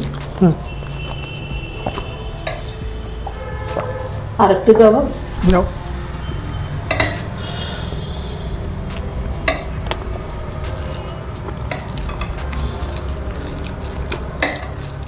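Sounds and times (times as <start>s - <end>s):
metal spoon clinking on ceramic dish: 6.9s - 7.3s.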